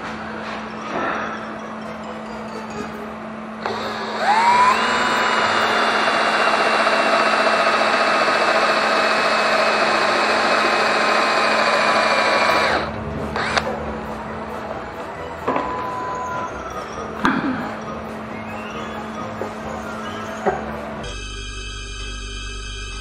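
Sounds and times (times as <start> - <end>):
electric drill boring into metal: 3.6 - 13.7.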